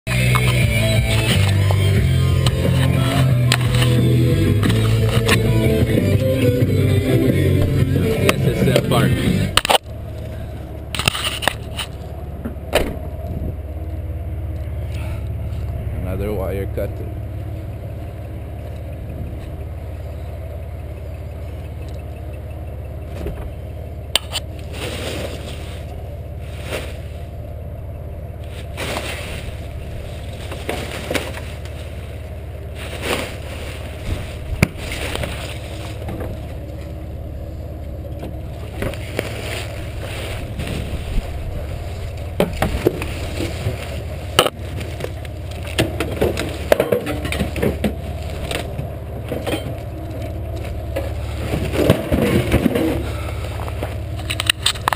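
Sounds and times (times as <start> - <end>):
low engine hum: 0.0 - 54.9
plastic rustling: 28.6 - 36.1.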